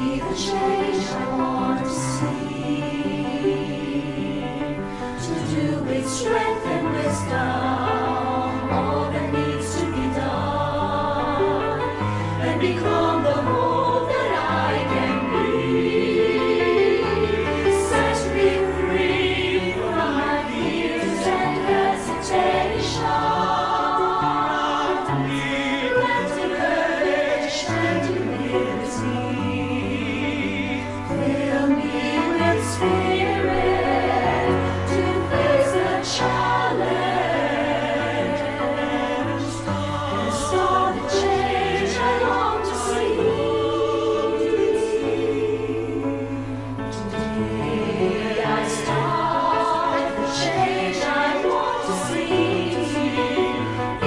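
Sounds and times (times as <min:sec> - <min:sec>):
choir singing: 0:00.0 - 0:54.0.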